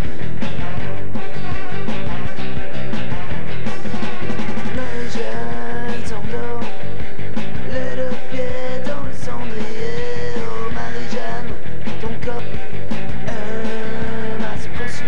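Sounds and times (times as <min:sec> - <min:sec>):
drums keeping steady beat: 0:00.0 - 0:15.0
rock song by band: 0:00.0 - 0:15.0.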